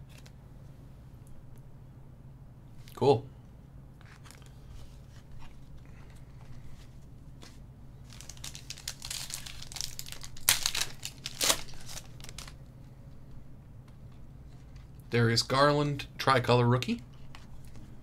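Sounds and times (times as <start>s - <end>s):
foil wrapper crinkling and tearing: 4.0s - 4.6s, 8.0s - 12.6s.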